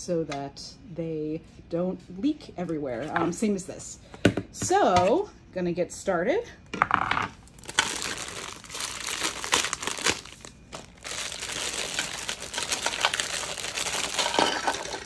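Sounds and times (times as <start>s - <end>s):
plastic bag crinkling: 7.5s - 15.0s.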